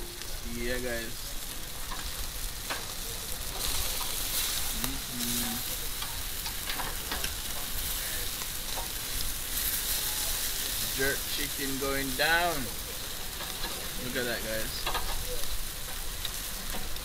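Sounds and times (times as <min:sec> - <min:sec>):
chicken sizzling on grill: 0:00.0 - 0:17.0
metal tongs clicking on grate: 0:01.7 - 0:05.0, 0:05.9 - 0:09.0, 0:13.0 - 0:14.0, 0:14.6 - 0:17.0.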